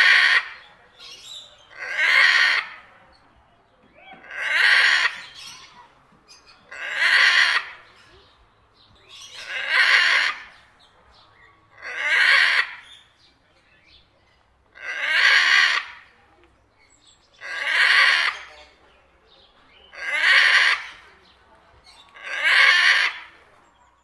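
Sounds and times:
parrot harsh calls: 0.0s - 2.8s, 4.1s - 5.8s, 6.7s - 8.0s, 9.2s - 10.6s, 11.7s - 13.0s, 14.7s - 16.1s, 17.4s - 18.5s, 19.9s - 21.0s, 22.2s - 23.4s.

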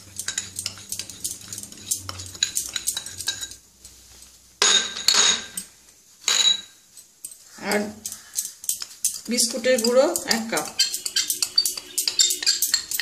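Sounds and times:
glass clattering on glass: 4.6s - 5.6s, 6.3s - 6.8s, 8.4s - 13.0s
glass cup clinking on glass bowl: 9.8s - 13.0s.

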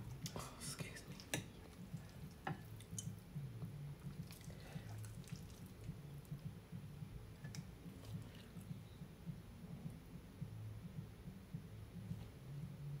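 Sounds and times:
low uneven hum: 0.0s - 13.0s
wet chewing: 4.2s - 5.9s.

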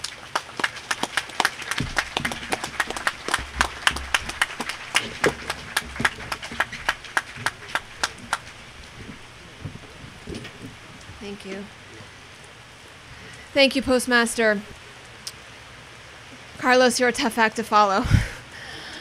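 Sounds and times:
small crowd applauding: 0.0s - 11.4s.

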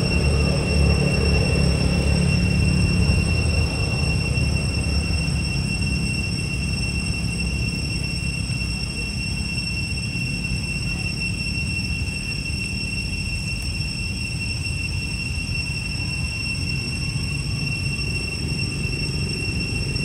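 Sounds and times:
constant high-pitched whine: 0.0s - 20.0s.

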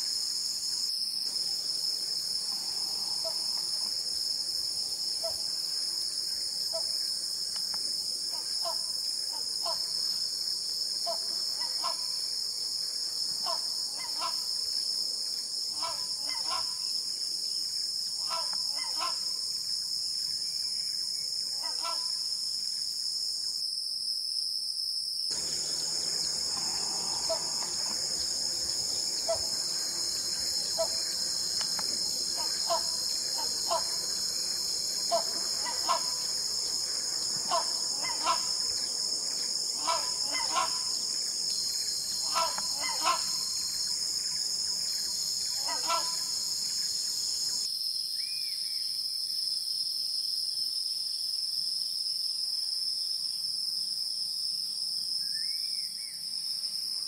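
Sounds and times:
high-pitched insect drone: 0.0s - 23.7s, 25.3s - 49.3s
short bird calls: 25.4s - 30.0s.

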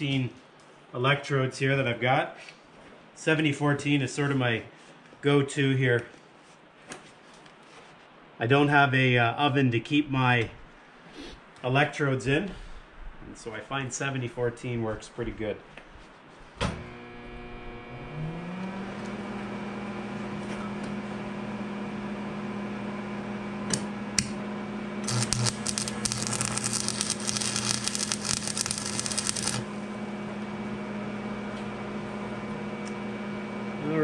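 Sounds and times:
arc welder humming: 16.8s - 18.8s, 25.0s - 30.6s
welding arc crackling: 25.0s - 29.8s
sharp clicks: 25.1s - 29.7s.

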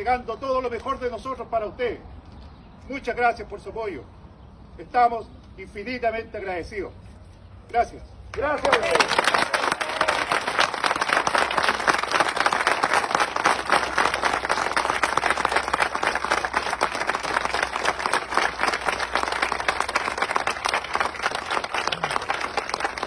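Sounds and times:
crowd applauding: 8.3s - 23.0s.

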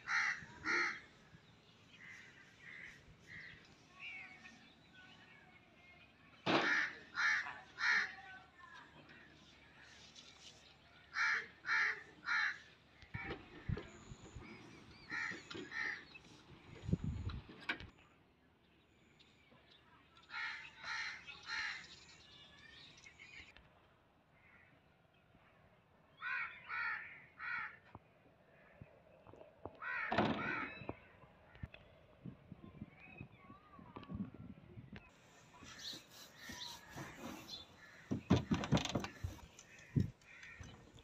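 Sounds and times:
crow cawing: 0.0s - 1.1s, 6.6s - 8.2s, 11.1s - 13.3s, 26.2s - 27.8s, 29.8s - 30.8s.

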